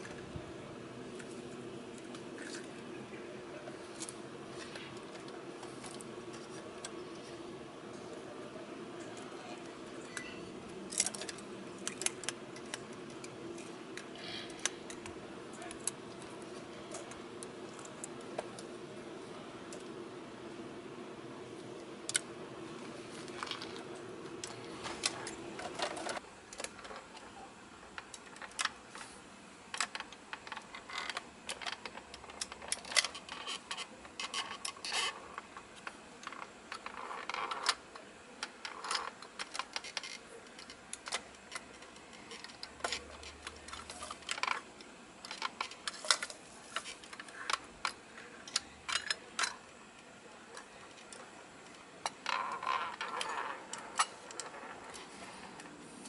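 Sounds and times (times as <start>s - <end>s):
toy truck forks clicking and clattering: 10.1s - 18.2s, 29.8s - 49.7s.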